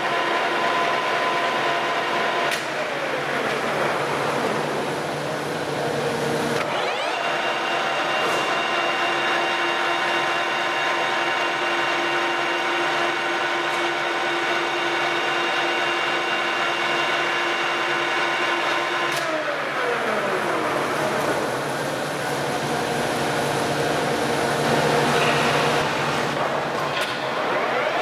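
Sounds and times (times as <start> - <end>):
lathe gears whining: 6.5 - 17.4.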